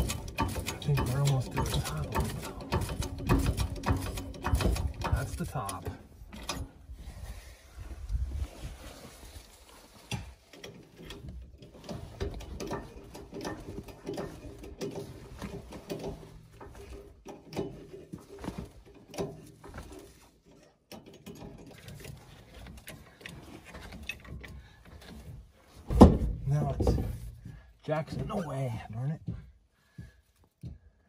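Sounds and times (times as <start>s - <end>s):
wheel clicking and scraping on hub: 0.0s - 5.8s.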